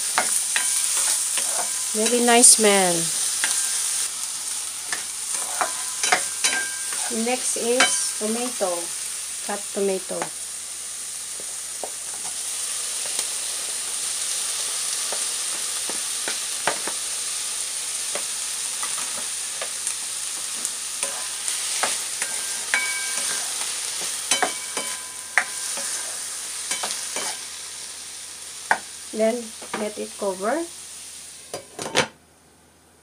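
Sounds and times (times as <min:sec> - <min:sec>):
onion sizzling in oil: 0:00.0 - 0:31.8
spatula scraping and knocking pan: 0:04.9 - 0:07.1.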